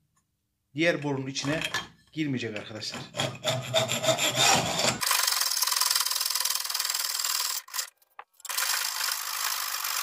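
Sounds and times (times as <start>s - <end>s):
hacksaw rasping on metal tube: 3.1s - 5.0s.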